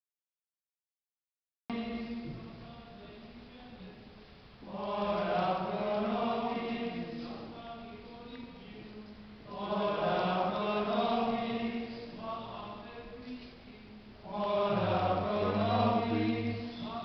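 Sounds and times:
voices singing a religious chant: 1.7 - 2.5, 4.6 - 17.0.

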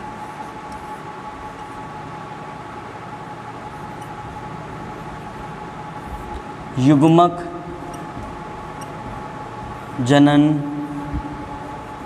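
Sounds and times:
marker scratching on whiteboard: 0.0 - 1.9, 3.7 - 4.2, 4.9 - 6.6
electrical hum: 0.0 - 12.0.

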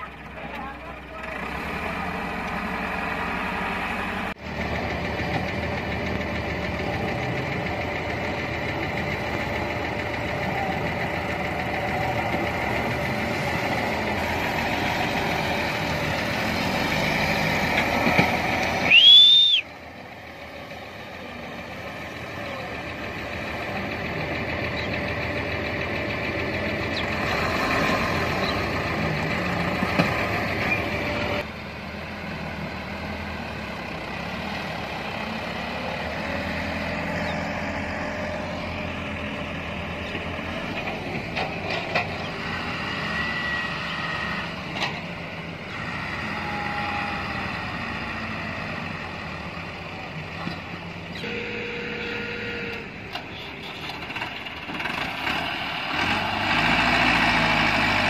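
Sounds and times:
tractor diesel engine running: 0.0 - 58.0
high whistle-like tone: 18.9 - 19.7.

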